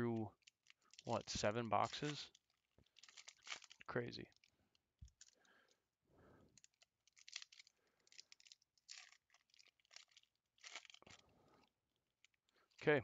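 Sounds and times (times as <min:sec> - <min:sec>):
foil wrapper crinkling and tearing: 0:00.4 - 0:04.5, 0:06.6 - 0:11.2.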